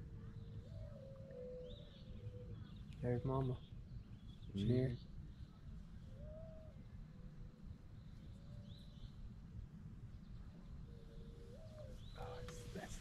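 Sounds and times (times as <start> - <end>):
faint thin bird calls: 10.9 - 13.0.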